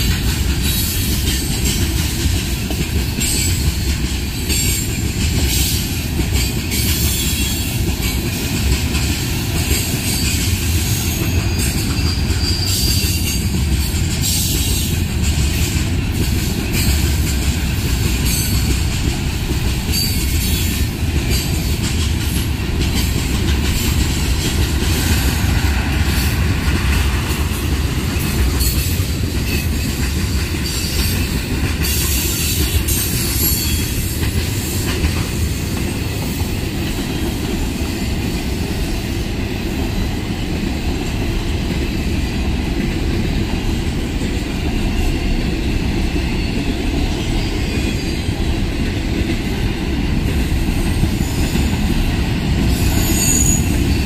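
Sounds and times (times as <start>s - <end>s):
train wheels rumbling on rail: 0.0s - 54.0s
high wheel squeal: 52.7s - 54.0s.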